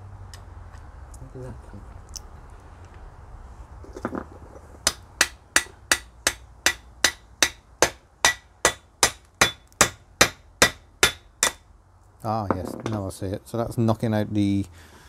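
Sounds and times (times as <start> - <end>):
hammer striking steel drift: 4.9 - 11.6.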